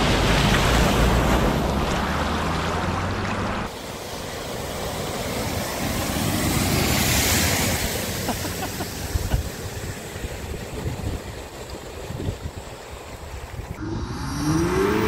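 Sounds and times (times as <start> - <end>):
car splashing through water: 0.0 - 15.0
wind buffeting microphone: 9.0 - 13.8.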